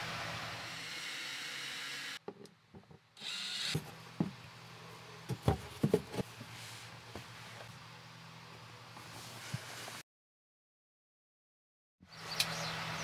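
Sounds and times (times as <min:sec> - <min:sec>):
cordless drill whirring: 0:00.6 - 0:02.2, 0:03.2 - 0:03.8
wooden panel knocked and scraped: 0:05.3 - 0:06.3.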